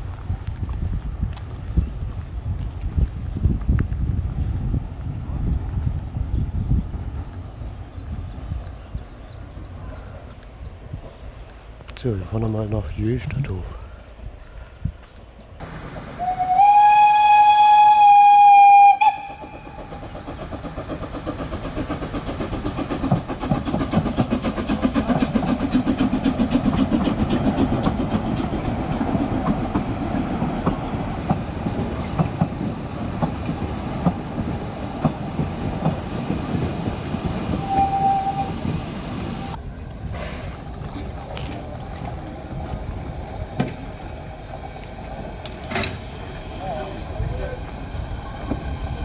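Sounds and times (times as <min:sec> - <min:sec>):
steam locomotive chuffing: 0:15.6 - 0:49.0
steam locomotive whistle: 0:16.2 - 0:19.8, 0:37.6 - 0:38.6.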